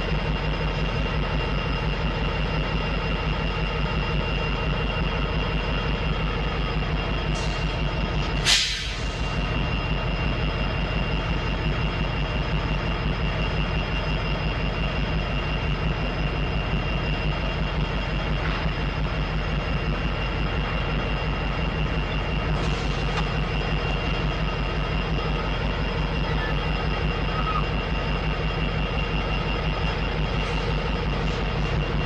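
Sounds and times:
diesel locomotive rumble: 0.0 - 32.0
burst of hissing air: 8.4 - 9.2.

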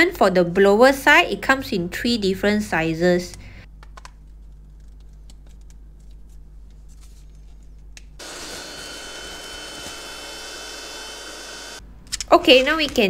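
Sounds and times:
vacuum blower whine and air rush: 8.2 - 11.8.

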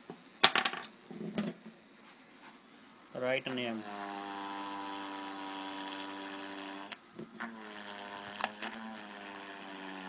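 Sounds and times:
electric motor whining: 3.1 - 10.0.

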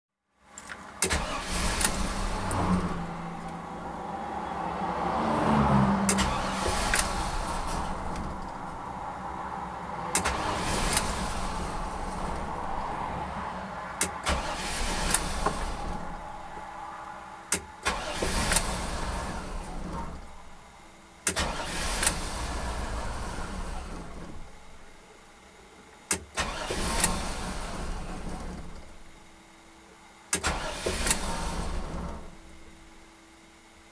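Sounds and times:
engine cranking and starting: 0.6 - 3.9, 5.7 - 9.3, 10.1 - 13.0, 14.0 - 16.6, 17.5 - 20.6, 21.2 - 24.9, 26.1 - 29.1, 30.3 - 32.6.

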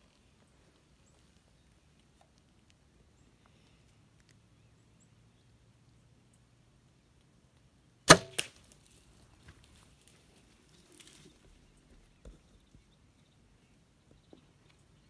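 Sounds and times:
sharp smack: 8.1 - 8.6
animal scrambling through dry grass: 8.3 - 12.1.

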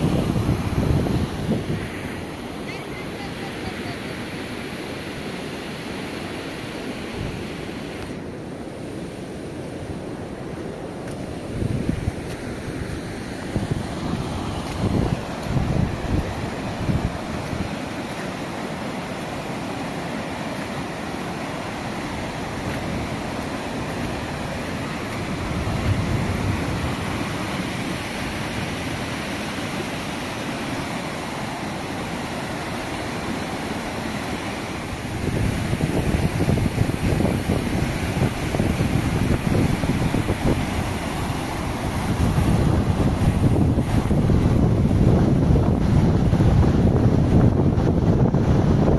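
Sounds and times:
wind buffeting microphone: 0.0 - 2.6, 9.9 - 48.9
floodwater rushing: 0.0 - 48.9.

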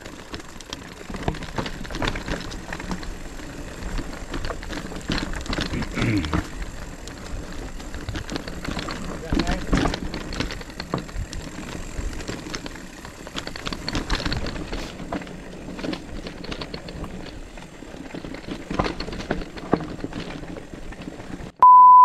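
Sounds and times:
bike rattling and clicking: 0.0 - 21.6
bike tyres on dirt and stones: 0.0 - 21.6
loud steady beep: 21.6 - 22.0.

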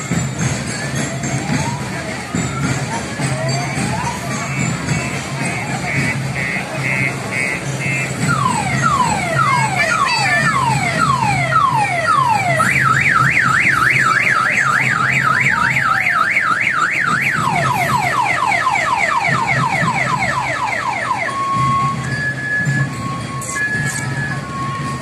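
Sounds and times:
electronic siren cycling tones: 8.2 - 25.0.

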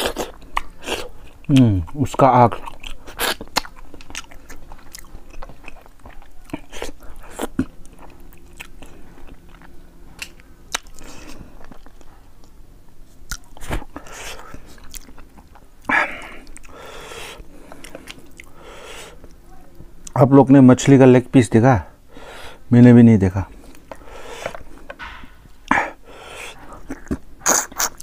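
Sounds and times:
man chewing and biting: 0.0 - 19.4, 23.5 - 28.0.

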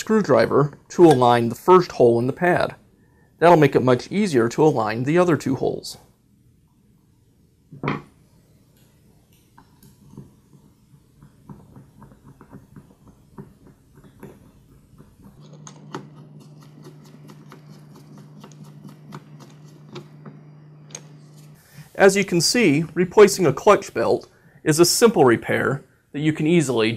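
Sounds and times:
steady low hum: 0.0 - 26.2.

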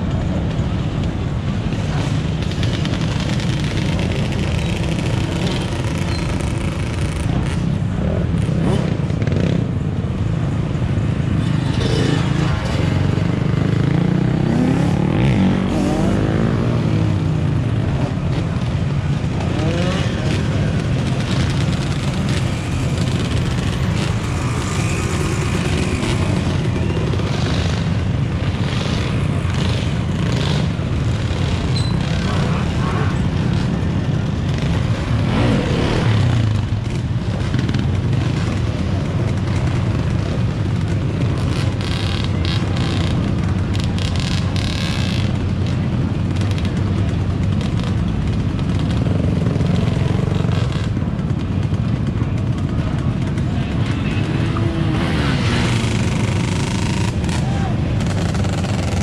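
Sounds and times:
dirt bike engines revving: 0.0 - 59.0
idling vehicle engines: 16.5 - 59.0.

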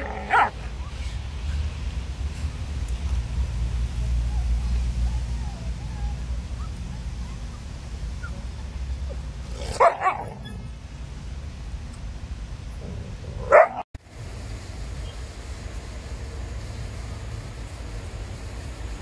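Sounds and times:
dog barking: 0.0 - 0.6, 9.7 - 10.4, 13.4 - 13.8.

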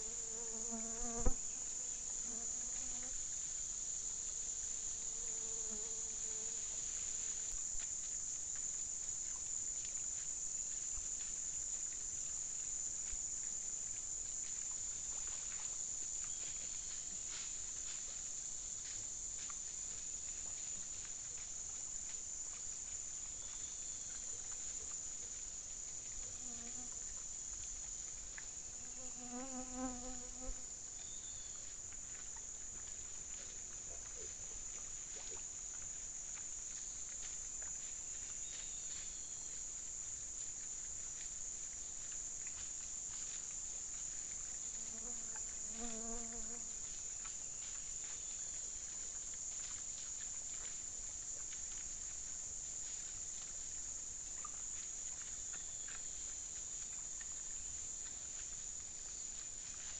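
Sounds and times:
insects buzzing drone: 0.0 - 7.6, 25.6 - 27.3, 27.9 - 33.6, 44.4 - 48.4.

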